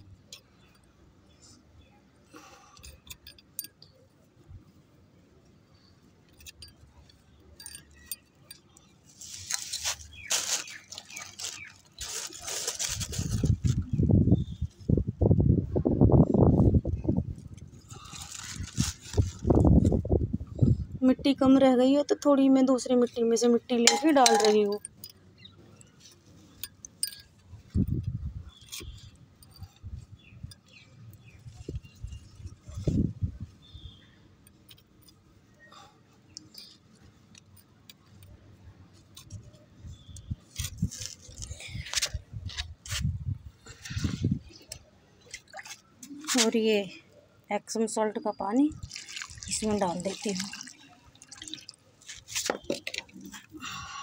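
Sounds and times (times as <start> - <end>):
trowel clinking and scraping: 6.3 - 11.7, 23.8 - 25.2, 25.8 - 27.8
soil rustling and scraping: 9.1 - 14.0, 17.4 - 20.1, 39.0 - 44.4, 48.8 - 53.5
soil dropping into pot: 23.9 - 24.8.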